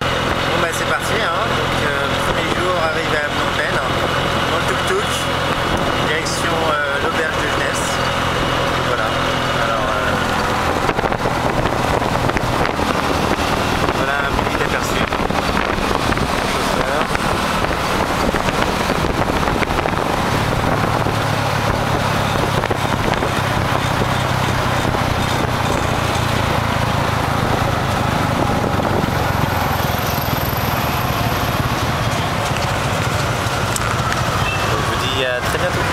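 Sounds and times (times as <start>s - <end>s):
motorbike engine humming: 0.0s - 35.9s
wind and road noise: 0.0s - 35.9s.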